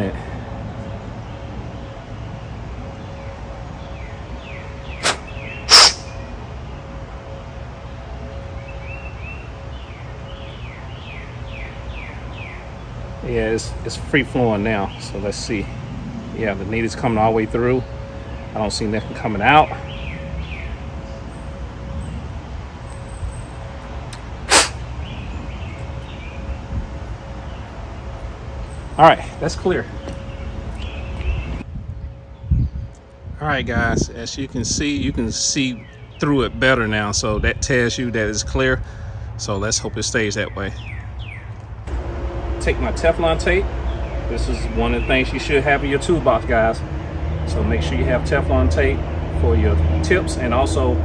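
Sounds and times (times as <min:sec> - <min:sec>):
steady low hum: 0:00.0 - 0:40.4, 0:41.0 - 0:49.6
birds chirping: 0:00.0 - 0:50.9
puff of breath through nozzle: 0:05.0 - 0:06.1, 0:24.5 - 0:24.8
short sharp noise bursts: 0:05.0 - 0:06.2, 0:24.4 - 0:24.8
low background rumble: 0:41.2 - 0:47.7.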